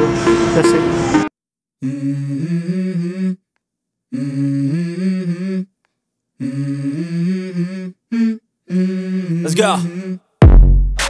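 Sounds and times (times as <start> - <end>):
hummed vocal phrase: 1.8 - 3.4, 4.1 - 5.7, 6.4 - 10.3.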